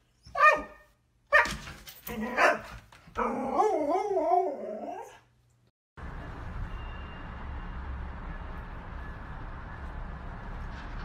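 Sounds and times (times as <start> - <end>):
dog yelping: 0.2 - 5.2.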